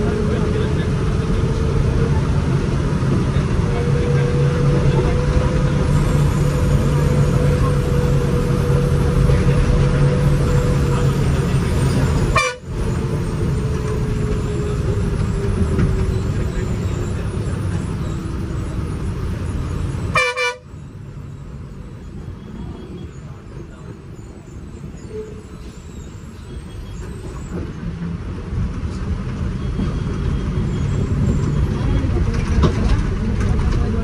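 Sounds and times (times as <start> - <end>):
bus engine running: 0.0 - 34.0
bus horn toots: 12.2 - 12.9, 20.0 - 20.8.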